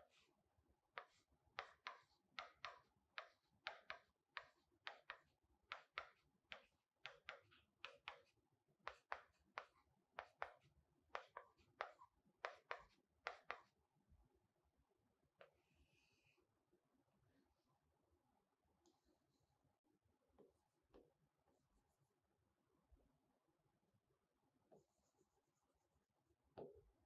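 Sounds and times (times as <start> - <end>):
pen scratching on writing board: 1.0 - 13.7.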